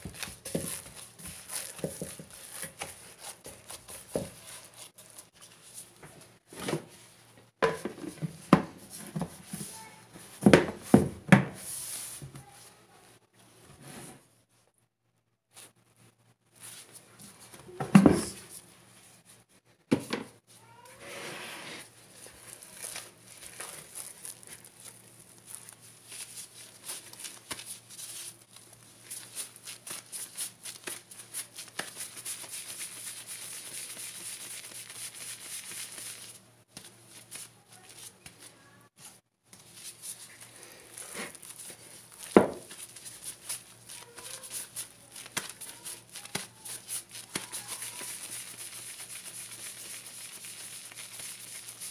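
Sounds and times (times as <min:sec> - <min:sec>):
plastic gloves crinkling: 0:00.0 - 0:07.2, 0:21.8 - 0:51.9.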